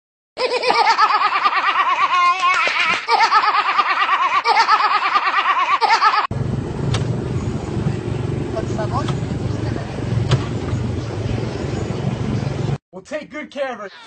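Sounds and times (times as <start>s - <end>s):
high-pitched rapid laughter: 0.4s - 6.3s
low steady rumble: 6.3s - 12.8s.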